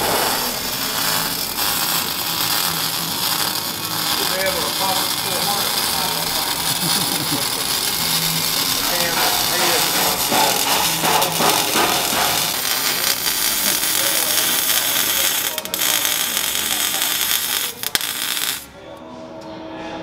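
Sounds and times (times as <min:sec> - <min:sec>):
welding arc hissing: 0:00.0 - 0:18.7.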